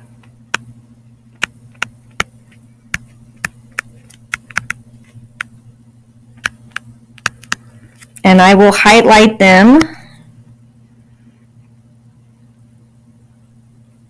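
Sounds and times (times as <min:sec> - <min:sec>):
steady low hum: 0:00.0 - 0:14.0
stylus tapping on tablet screen: 0:01.4 - 0:02.3, 0:02.9 - 0:04.8, 0:06.4 - 0:07.7.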